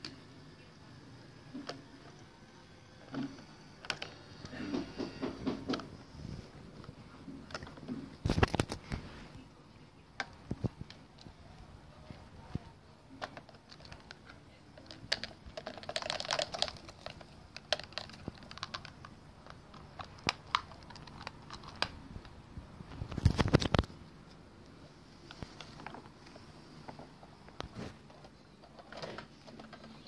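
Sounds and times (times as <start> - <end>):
plastic rattling clatter: 14.8 - 21.9.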